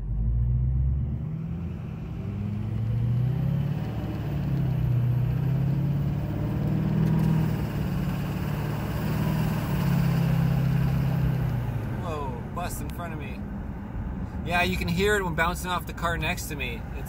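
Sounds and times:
truck engine accelerating: 0.0s - 14.9s
road noise: 0.0s - 17.0s.

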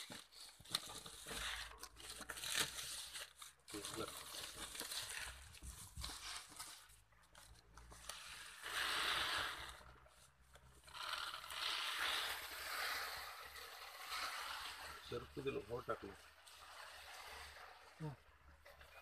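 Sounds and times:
grain pouring hiss: 8.2s - 9.9s, 11.0s - 15.3s.

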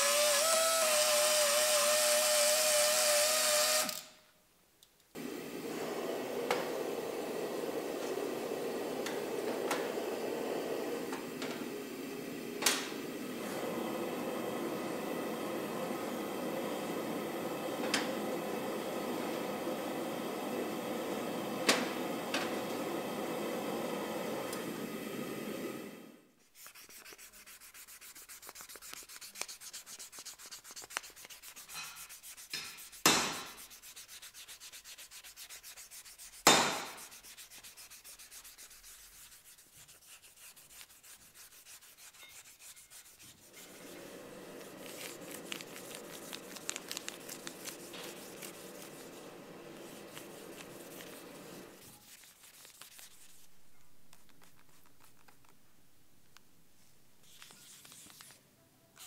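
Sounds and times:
sandpaper rubbing on metal: 26.4s - 55.4s.

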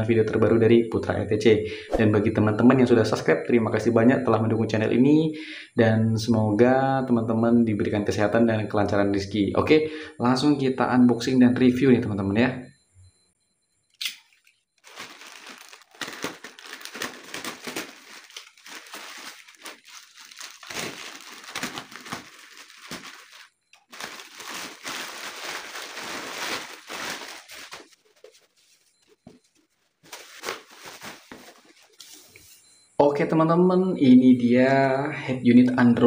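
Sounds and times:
plastic mailer bag crinkling: 14.8s - 32.0s.

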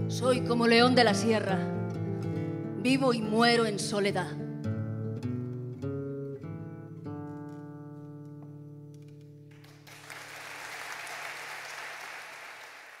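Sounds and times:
audience applause: 9.5s - 13.0s.

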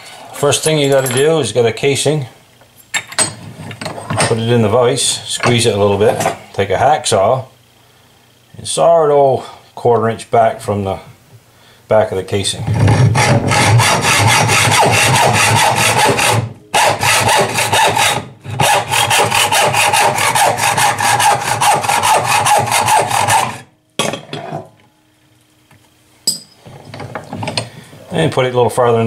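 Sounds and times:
hacksaw rasping through metal: 12.8s - 23.6s.

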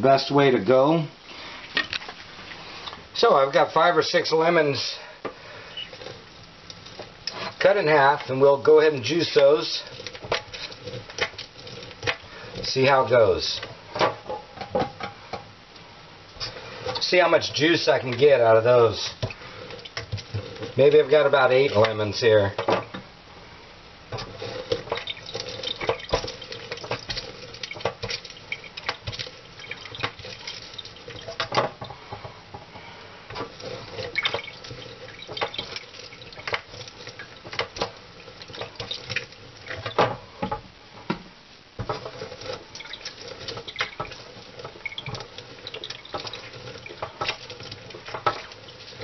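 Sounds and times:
lemon squelching on juicer: 5.6s - 13.1s, 24.1s - 32.0s, 33.3s - 40.4s, 41.8s - 49.0s.

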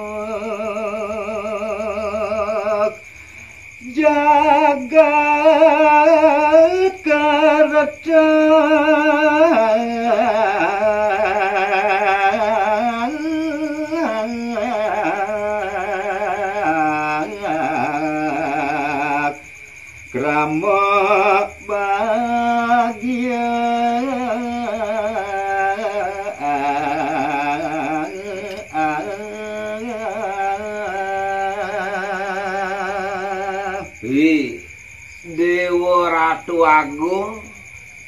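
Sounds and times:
man singing unaccompanied: 0.0s - 37.7s.

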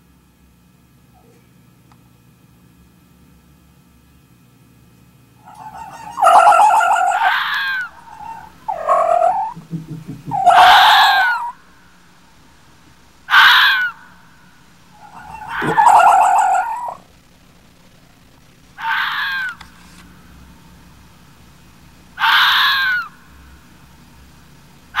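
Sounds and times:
fox whining calls: 5.4s - 9.6s, 10.2s - 11.6s, 13.3s - 14.1s, 14.9s - 17.1s, 18.8s - 19.8s, 22.2s - 23.2s.

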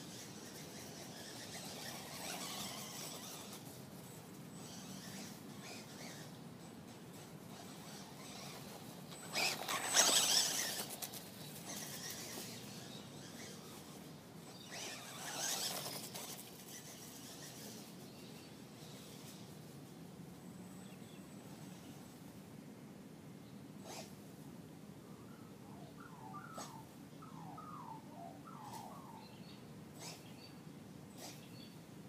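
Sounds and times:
toy car electric motor whirring: 0.0s - 3.8s, 4.5s - 18.0s.

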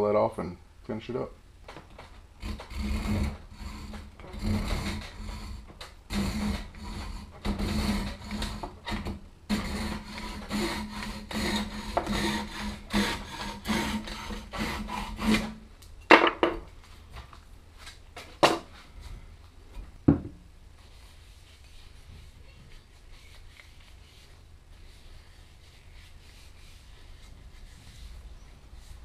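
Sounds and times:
hand saw cutting wood: 2.4s - 15.6s.

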